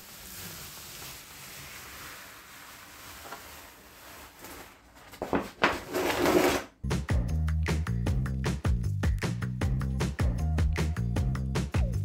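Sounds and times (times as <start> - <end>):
wallpaper tearing: 0.0 - 6.7.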